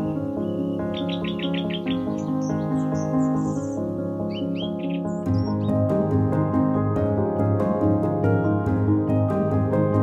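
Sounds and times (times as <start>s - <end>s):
bird chirping: 0.0s - 6.0s
sustained chords background music: 0.0s - 10.0s.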